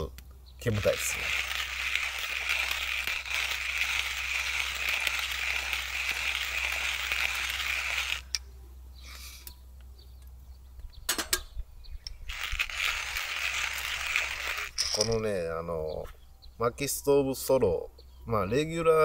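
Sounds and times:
coffee grinder grinding beans: 0:00.6 - 0:08.4, 0:12.1 - 0:15.2.

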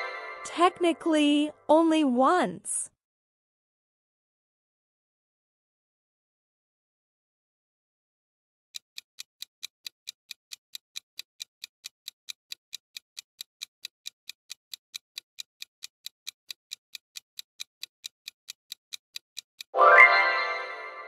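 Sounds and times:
clock ticking: 0:08.8 - 0:19.8.

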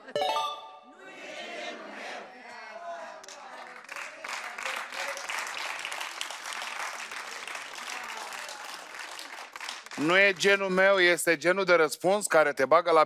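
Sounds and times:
audience applauding: 0:03.3 - 0:10.5.

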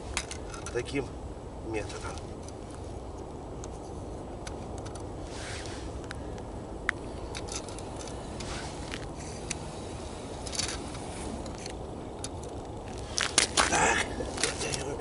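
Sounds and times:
clicks and rustles of fishing line: 0:10.4 - 0:15.0.

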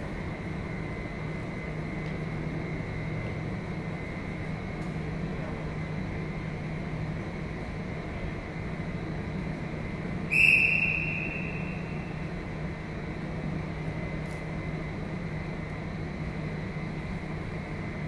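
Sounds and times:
steady low hum: 0:00.0 - 0:18.0
short high whistle blast: 0:10.3 - 0:12.1.

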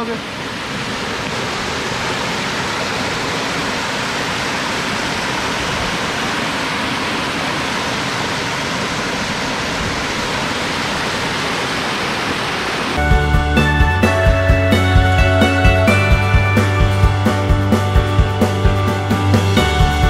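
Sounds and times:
waterfall rushing and splashing: 0:00.0 - 0:14.5.

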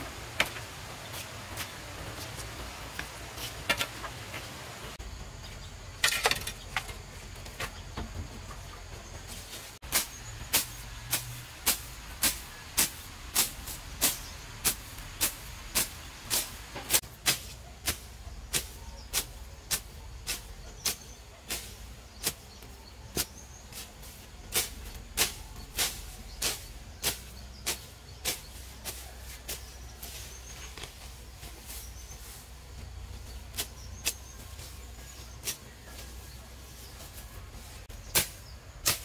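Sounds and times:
hand tool striking wood: 0:02.9 - 0:04.2.

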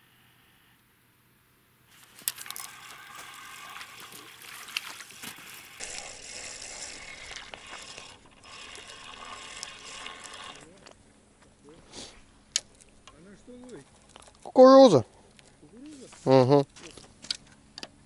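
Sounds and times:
fishing reel whirring and clicking: 0:02.0 - 0:03.8.

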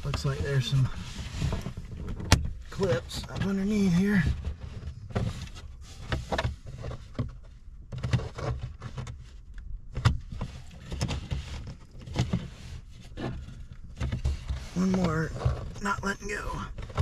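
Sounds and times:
plastic trim knocks and creaks: 0:01.4 - 0:09.3.

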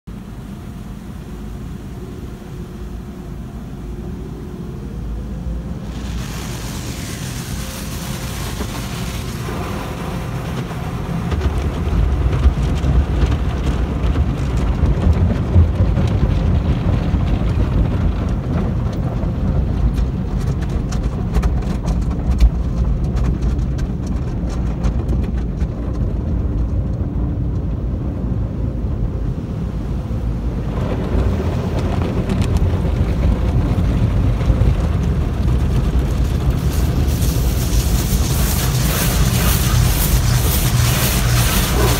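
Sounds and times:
car wash machinery rumble: 0:00.0 - 0:41.9
water spraying on windshield: 0:05.6 - 0:28.2, 0:30.6 - 0:41.9
hissing spray: 0:05.7 - 0:10.9, 0:36.3 - 0:41.9
rapid patter of hits on car: 0:09.2 - 0:27.3.

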